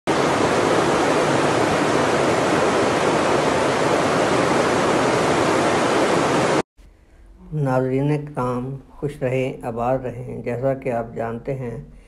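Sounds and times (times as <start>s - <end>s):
water rushing: 0.1s - 6.6s.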